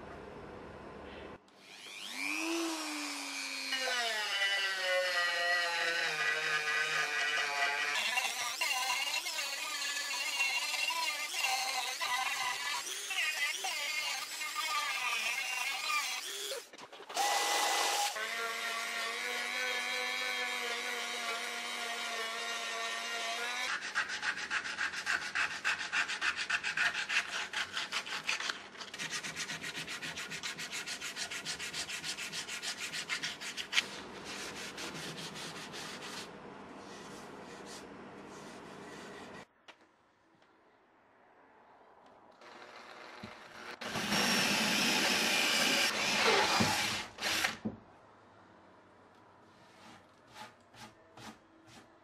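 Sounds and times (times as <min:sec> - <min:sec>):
rotary tool grinding wood: 0:01.6 - 0:33.9, 0:42.4 - 0:47.6.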